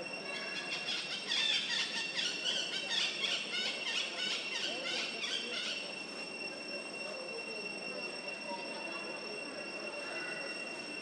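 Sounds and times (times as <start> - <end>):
steady high-pitched whine: 0.0 - 11.0
animal squeals and chirps: 0.3 - 5.8.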